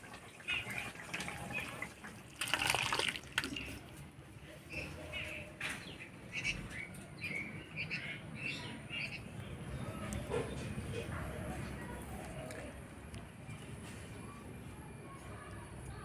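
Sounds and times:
birds chirping: 4.4 - 15.4.

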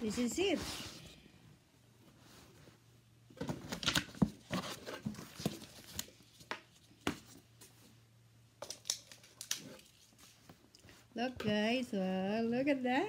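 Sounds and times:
cardboard and paper rustling: 3.4 - 7.4.

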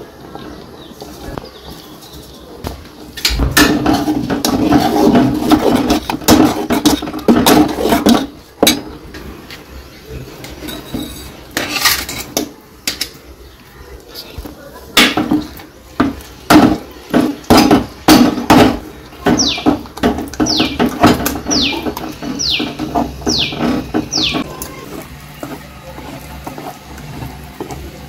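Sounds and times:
metal spoon scraping pot: 3.6 - 8.8, 10.4 - 12.4, 19.4 - 28.0.

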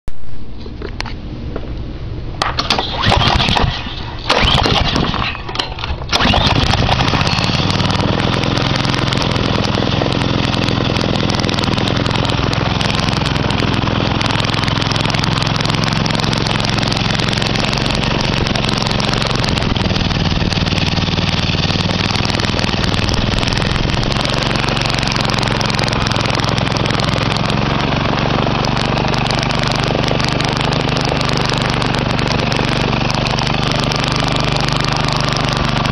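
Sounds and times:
small engine starting and running: 2.4 - 35.9.

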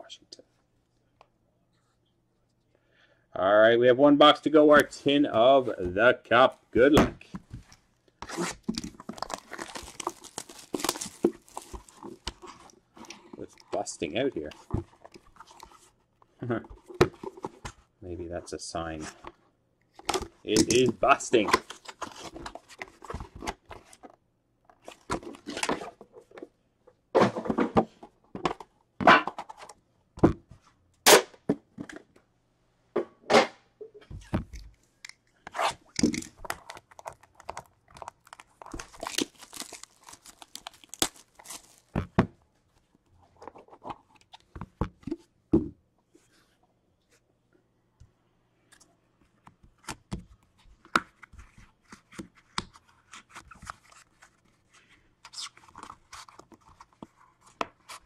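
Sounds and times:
wrapping tearing and crinkling: 8.3 - 13.3, 35.7 - 42.0.

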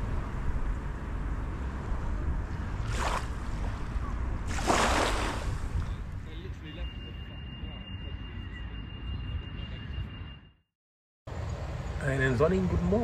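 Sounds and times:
wind rumble on microphone: 0.0 - 6.6.

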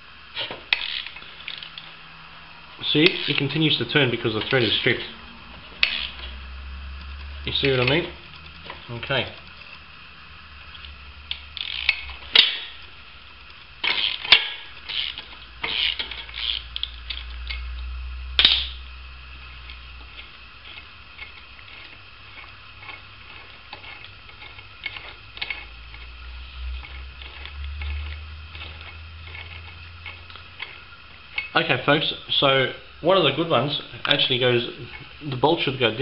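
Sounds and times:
steady low hum: 0.0 - 36.0
wrench and bolt clicking on metal: 0.4 - 1.9, 5.8 - 6.3, 10.8 - 12.8, 13.8 - 17.7.

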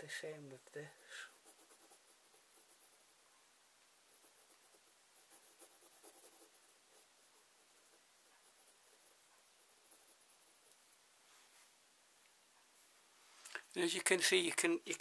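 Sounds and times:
pencil scratching on paper: 0.5 - 3.3, 4.1 - 11.0.

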